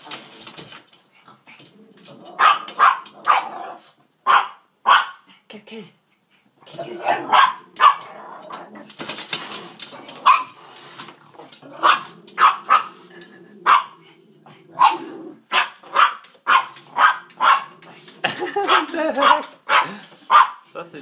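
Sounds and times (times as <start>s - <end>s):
small dog barking: 2.4s - 5.2s, 7.0s - 8.1s, 10.2s - 10.6s, 11.8s - 13.0s, 13.6s - 14.0s, 14.8s - 17.7s, 18.6s - 20.6s.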